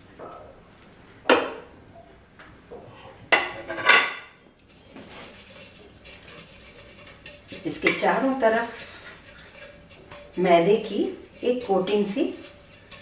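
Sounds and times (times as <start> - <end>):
flour rattling in metal mould: 4.7 - 13.0.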